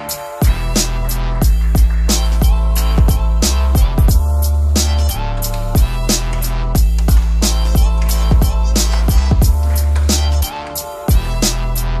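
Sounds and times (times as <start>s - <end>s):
drum beat with deep bass: 0.4s - 12.0s
heavy kick drum: 1.4s - 4.3s, 6.8s - 10.2s.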